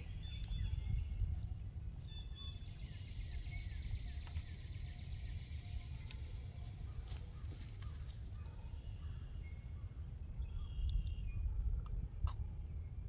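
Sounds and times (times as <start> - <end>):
low steady rumble: 0.0 - 13.0
faint bird chirps: 2.0 - 13.0.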